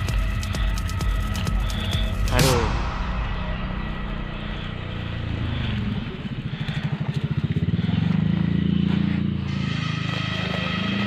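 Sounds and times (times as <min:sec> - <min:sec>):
small engine running: 0:04.3 - 0:11.0.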